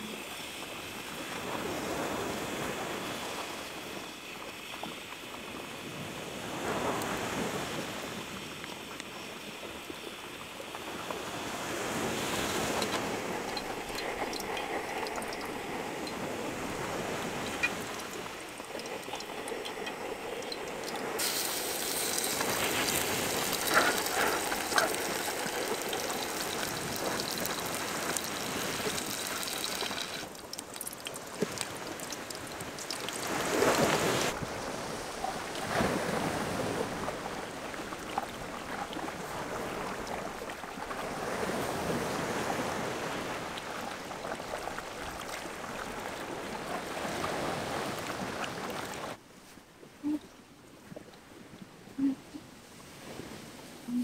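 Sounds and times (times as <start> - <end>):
water pouring and trickling: 12.0 - 49.2.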